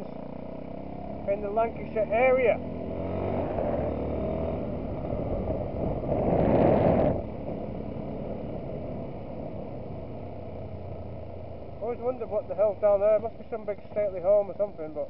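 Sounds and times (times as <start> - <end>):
motorcycle engine running: 0.0 - 15.0
rush of noise: 2.9 - 9.6.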